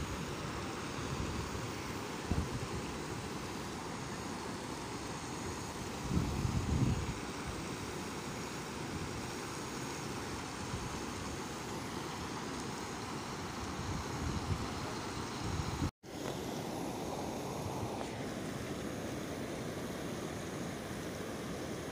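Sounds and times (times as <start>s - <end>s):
wind buffeting microphone: 2.3s - 2.8s, 6.0s - 7.2s.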